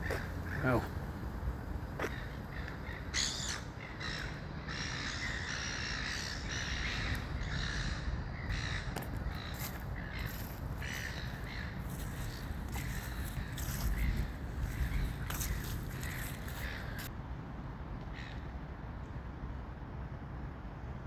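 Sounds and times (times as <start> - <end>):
flock of birds calling: 2.0 - 17.1.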